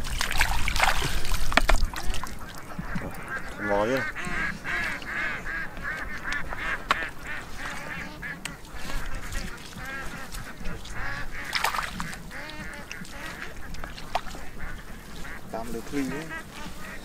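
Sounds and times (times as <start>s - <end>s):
chorus of animal calls: 1.8s - 17.0s.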